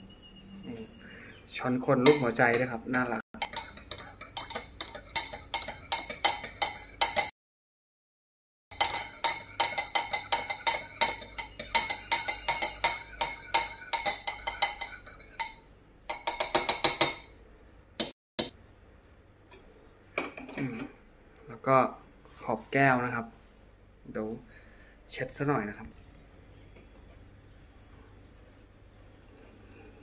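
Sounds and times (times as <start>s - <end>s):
spoon clinking in mug: 3.4s - 7.3s, 8.8s - 17.3s.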